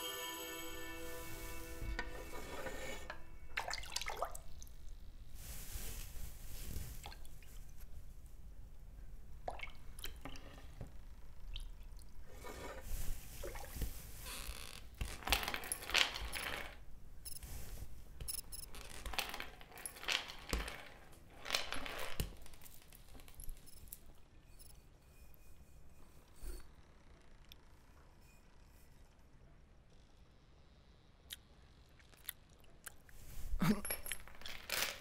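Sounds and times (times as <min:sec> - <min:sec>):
water splashing and sloshing: 0:03.6 - 0:04.8, 0:09.4 - 0:10.8, 0:11.5 - 0:14.2.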